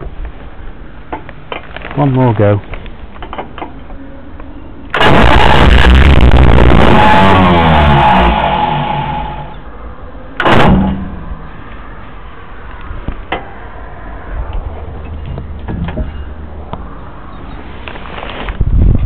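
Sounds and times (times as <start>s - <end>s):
car engine cranking: 4.9s - 9.6s.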